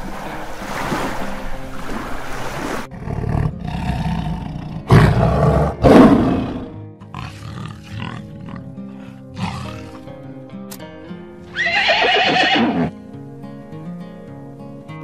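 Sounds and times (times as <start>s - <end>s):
background music: 0.0s - 15.0s
lion roaring: 2.9s - 10.1s.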